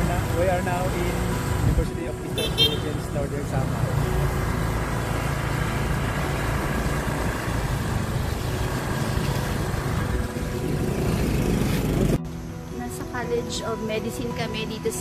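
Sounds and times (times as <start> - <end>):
motorcycle engine running: 0.0 - 14.2
road noise: 0.0 - 15.0.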